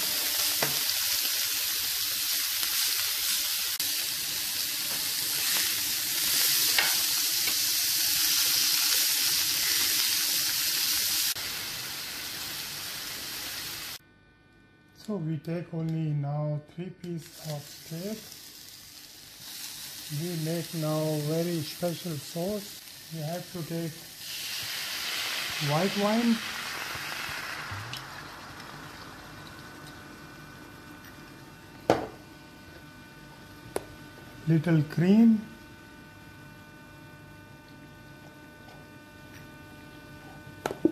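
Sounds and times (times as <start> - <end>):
meat sizzling in frying pan: 0.0 - 14.0, 17.2 - 30.4
wine simmering in a frying pan: 17.3 - 31.2.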